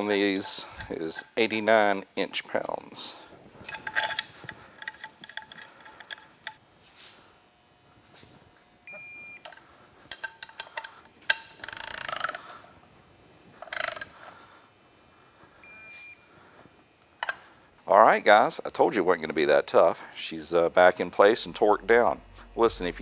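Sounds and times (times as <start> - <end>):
torque wrench beep: 8.9 - 9.4
ratchet clicks: 11.6 - 12.4, 13.6 - 14.1
ratchet rasps: 11.6 - 12.4, 13.6 - 14.1.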